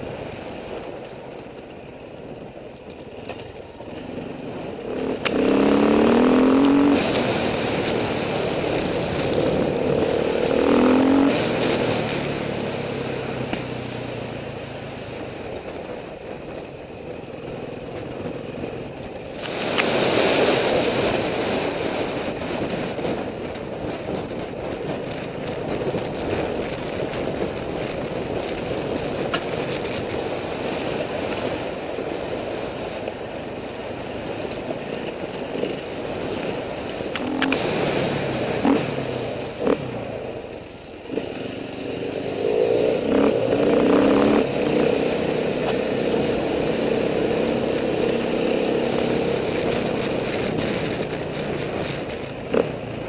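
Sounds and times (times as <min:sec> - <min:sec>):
dirt bike engine revving: 0:04.2 - 0:13.6, 0:37.2 - 0:40.0, 0:41.0 - 0:53.0.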